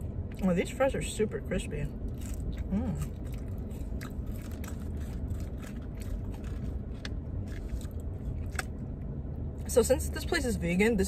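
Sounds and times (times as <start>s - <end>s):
steady low hum: 0.0s - 11.0s
french fries crunching: 2.0s - 8.9s.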